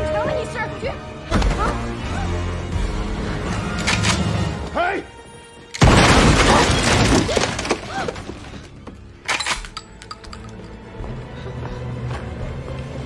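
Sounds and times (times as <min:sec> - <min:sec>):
tense film score: 0:00.0 - 0:13.0
shattering debris: 0:05.8 - 0:08.7.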